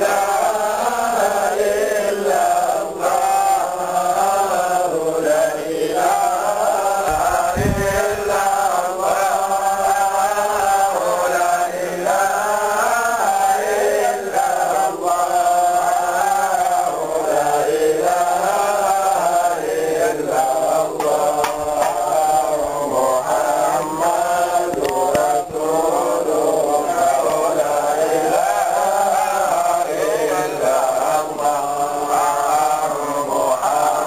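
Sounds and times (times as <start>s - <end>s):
men chanting: 0.0s - 34.0s.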